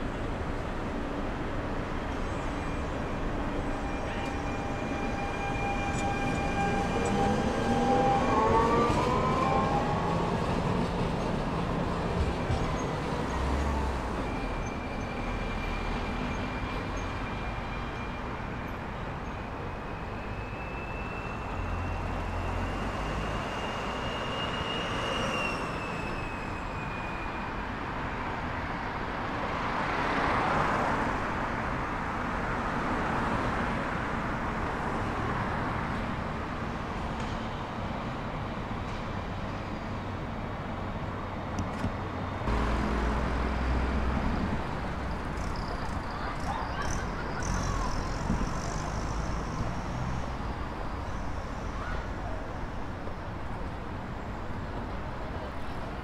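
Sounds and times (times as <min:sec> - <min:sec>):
road noise: 0:00.0 - 0:56.0
vehicles passing: 0:27.8 - 0:56.0.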